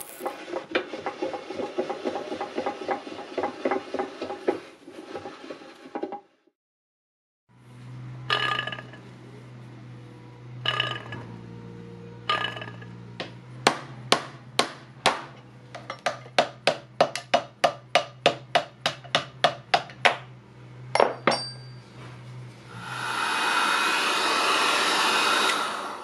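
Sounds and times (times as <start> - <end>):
hammer striking metal punch: 21.0 - 21.8.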